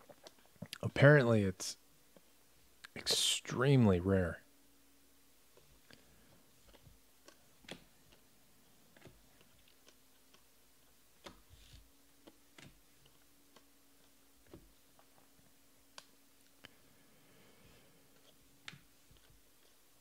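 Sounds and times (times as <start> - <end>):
faint steady hum: 0.0 - 20.0
cards being flipped by hand: 11.2 - 13.7.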